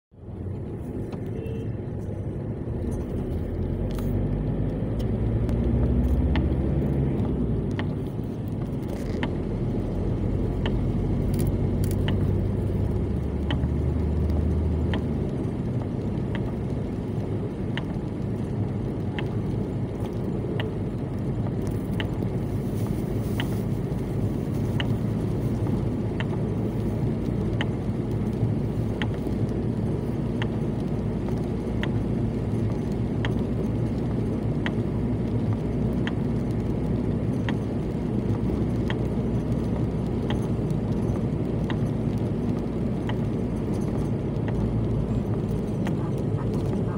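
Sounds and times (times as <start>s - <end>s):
car engine and tyre rumble: 0.0s - 46.9s
faint repeating tick: 17.7s - 18.2s, 30.3s - 32.0s, 32.6s - 34.8s.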